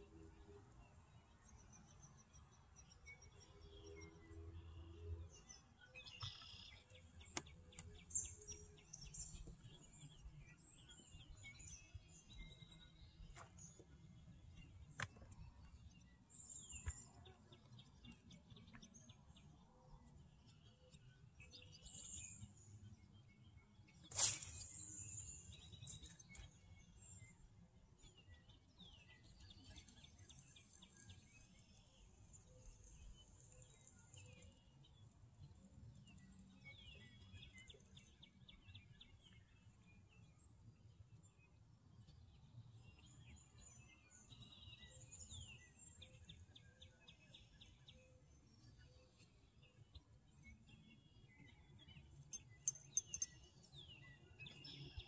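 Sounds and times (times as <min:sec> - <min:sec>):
birds chirping and singing: 0:03.7 - 0:19.6.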